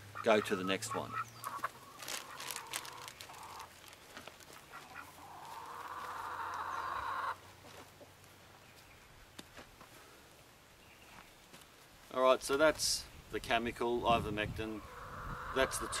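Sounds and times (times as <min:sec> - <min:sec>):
chicken calling: 0:00.0 - 0:03.8, 0:04.5 - 0:07.4, 0:14.7 - 0:16.0
faint clicks and rustles: 0:01.5 - 0:06.0.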